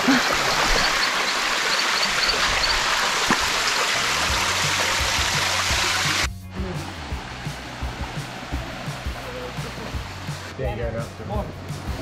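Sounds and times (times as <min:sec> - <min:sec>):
waterfall rushing: 0:00.0 - 0:10.5
low background music: 0:03.8 - 0:12.0.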